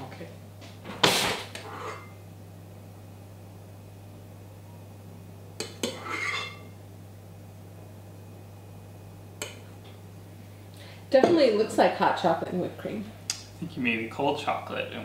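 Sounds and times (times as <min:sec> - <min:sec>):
low steady hum: 0:00.0 - 0:15.0
spatula scraping spoon: 0:01.6 - 0:02.1, 0:05.8 - 0:06.7.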